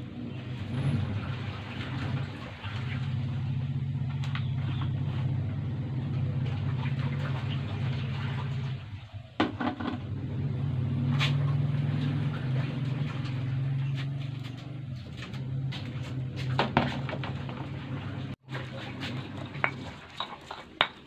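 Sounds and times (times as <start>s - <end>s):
low motor hum: 0.0s - 20.0s
kitchen items clacking: 13.2s - 21.0s.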